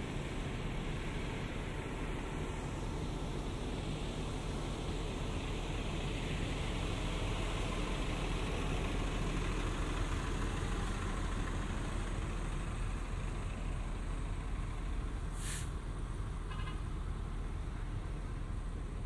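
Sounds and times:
traffic engines rumbling: 0.0s - 19.0s
brief hiss: 15.3s - 15.8s.

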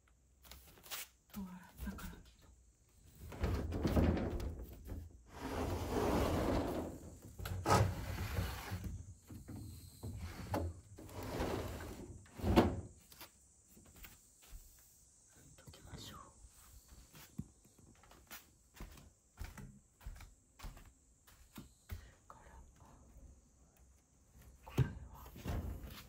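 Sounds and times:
sliding window rumbling on wooden tracks: 3.4s - 8.8s, 10.2s - 12.8s.

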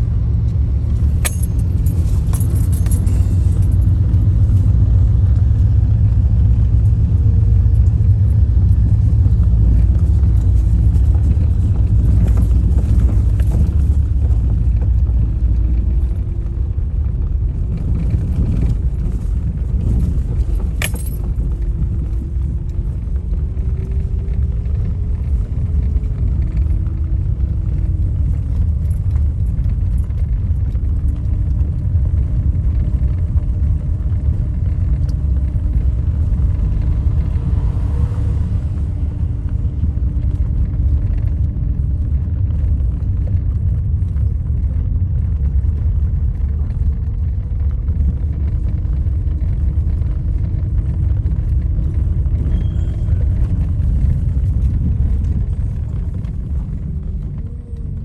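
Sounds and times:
car cabin low rumble: 0.0s - 58.0s
faint hum shifting in pitch: 45.5s - 58.0s.

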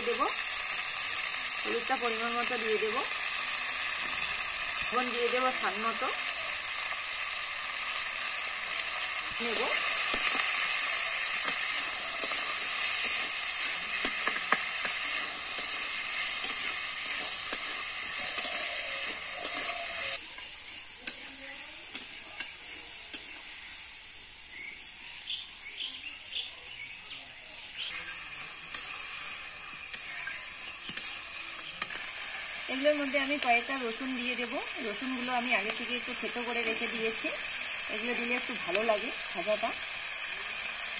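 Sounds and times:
vegetables sizzling in oil: 0.0s - 40.9s
steel spatula scraping pan: 11.4s - 20.5s.

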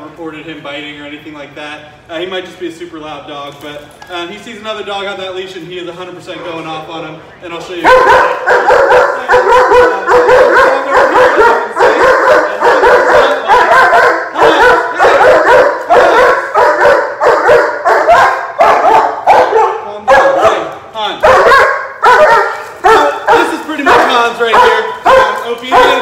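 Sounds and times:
dog barking loudly: 7.8s - 26.0s.

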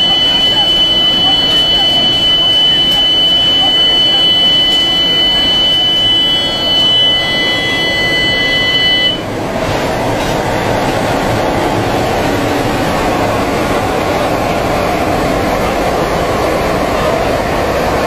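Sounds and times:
high-pitched tone: 0.0s - 10.3s
aircraft engine: 0.0s - 18.0s.

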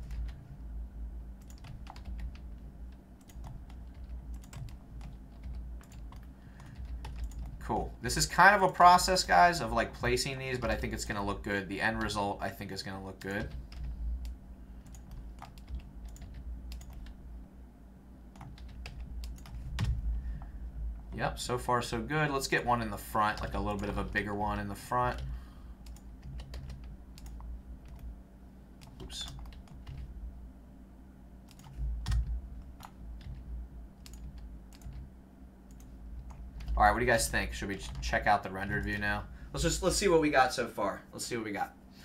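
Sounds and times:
keyboard typing: 0.0s - 0.4s, 1.4s - 7.6s, 13.2s - 17.2s, 18.3s - 20.0s, 25.1s - 28.1s, 28.8s - 30.1s, 31.5s - 35.1s
low steady hum: 0.0s - 42.0s.

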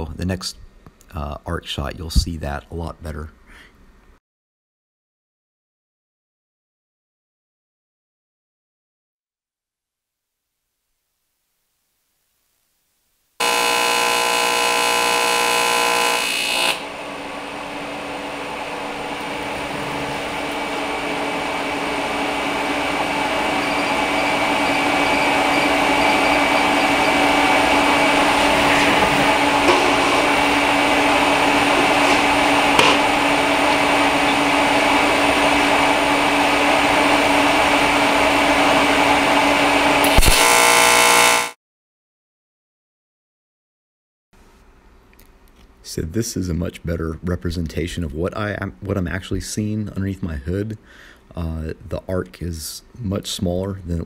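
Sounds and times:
welding arc harsh buzz: 13.4s - 41.6s
welding steady hum: 13.4s - 41.6s.

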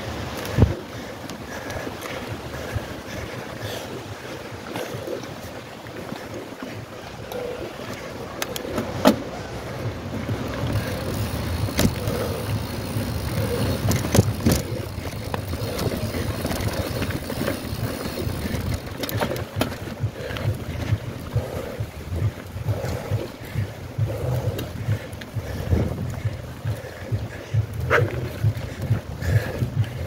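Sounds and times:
wind on microphone: 0.0s - 30.0s
bike rumbling over dirt: 7.3s - 30.0s
bike knocking over bumps: 10.2s - 21.1s.

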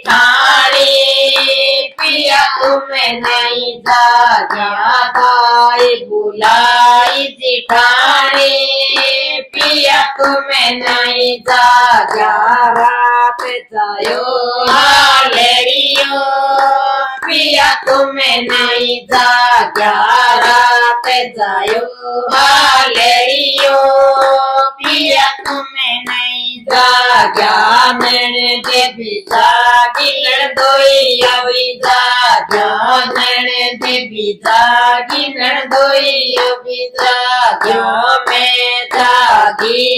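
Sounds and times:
hand claps: 0.0s - 39.9s
women singing folk song: 0.0s - 39.9s.

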